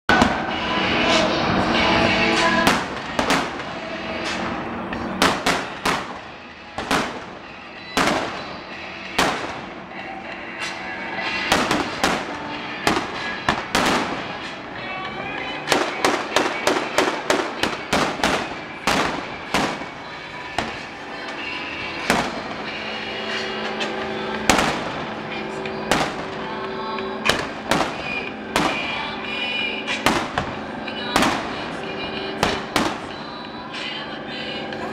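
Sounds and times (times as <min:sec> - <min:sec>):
cannon blasts with echo: 0:05.2 - 0:09.8, 0:11.4 - 0:14.5, 0:15.7 - 0:21.0, 0:22.0 - 0:22.8, 0:24.4 - 0:25.3, 0:25.9 - 0:26.5, 0:27.2 - 0:29.1, 0:30.0 - 0:31.8, 0:32.4 - 0:33.3.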